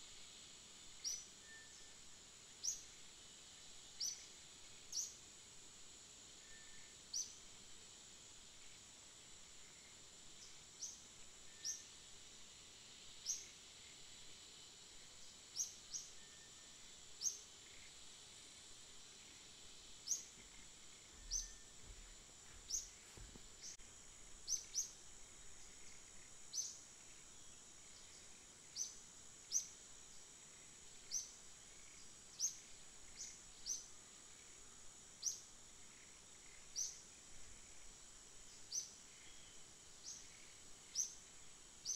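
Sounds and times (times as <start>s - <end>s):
insect hiss: 0.0s - 41.9s
bird chirping: 20.0s - 23.8s.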